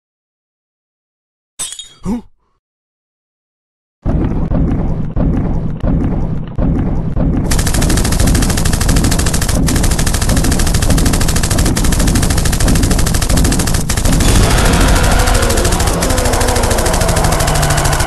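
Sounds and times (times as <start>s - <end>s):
rapid automatic gunfire: 7.5s - 18.0s.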